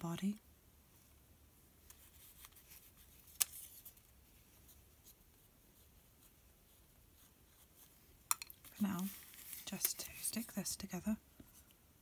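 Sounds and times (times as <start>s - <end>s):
paintbrush strokes on paper: 2.0s - 10.8s.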